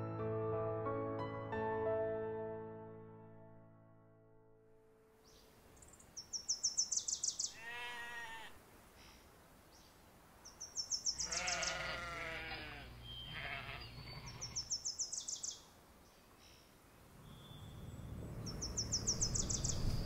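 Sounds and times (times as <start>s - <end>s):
songbird trilling: 5.8s - 7.6s, 13.0s - 15.6s, 18.4s - 20.0s
sheep bleating: 7.5s - 8.6s, 11.2s - 14.7s.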